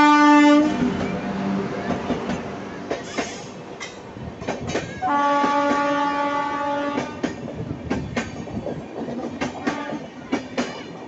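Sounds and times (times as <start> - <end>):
train horn blast: 0.0 - 0.9, 5.0 - 7.3
train wheels clickety-clack: 1.8 - 11.0.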